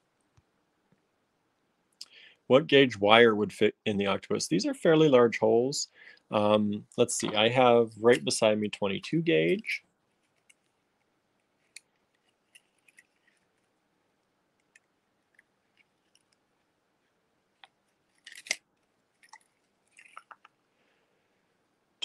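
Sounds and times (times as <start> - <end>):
wire clicking and rustling: 10.1 - 13.7, 14.6 - 16.5, 17.6 - 20.6.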